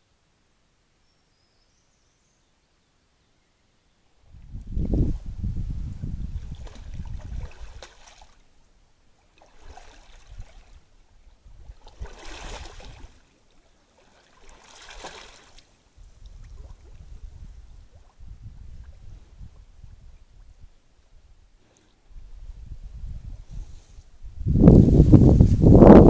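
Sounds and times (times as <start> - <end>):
footsteps splashing in water: 6.4 - 8.4, 11.8 - 13.2, 14.0 - 15.7.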